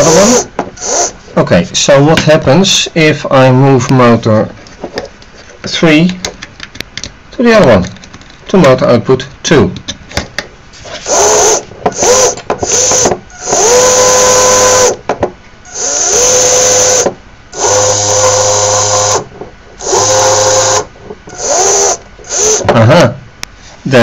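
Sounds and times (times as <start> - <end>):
small geared motors whirring: 0.0 - 1.2, 10.9 - 15.0, 15.7 - 22.7.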